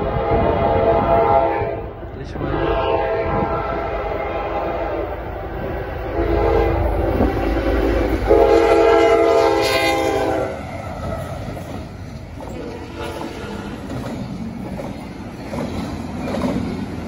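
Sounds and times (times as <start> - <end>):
locomotive horn blasts: 0.0 - 1.9, 6.0 - 10.7, 12.6 - 13.8
low rumble of train: 0.0 - 17.0.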